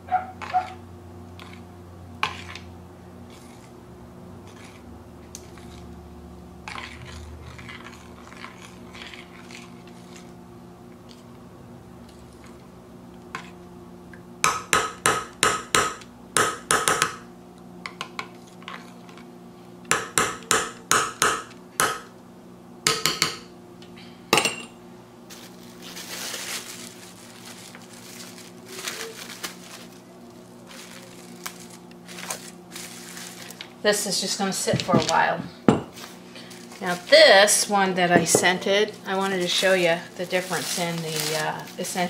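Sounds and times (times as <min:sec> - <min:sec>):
plastic cling wrap crinkling: 0:25.3 - 0:33.8, 0:35.9 - 0:37.7, 0:38.9 - 0:42.0.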